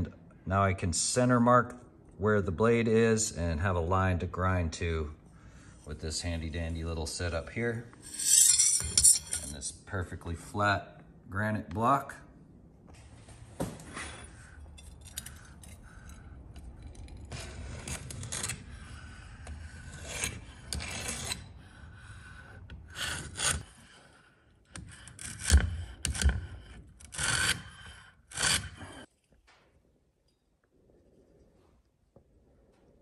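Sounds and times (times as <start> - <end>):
scriber scraping metal: 7.1 - 9.8, 14.0 - 22.0.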